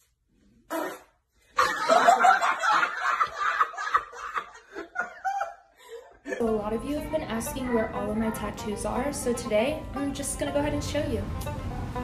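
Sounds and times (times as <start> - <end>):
hearty laughter: 1.6 - 6.4.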